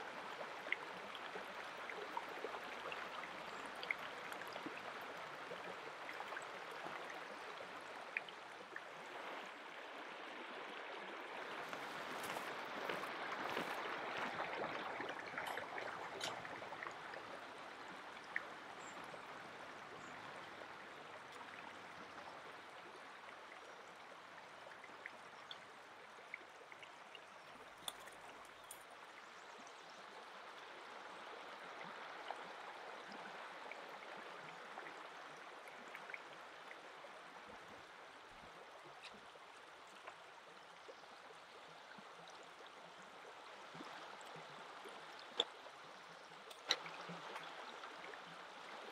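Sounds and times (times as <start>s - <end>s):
river babbling over stones: 0.0s - 23.4s.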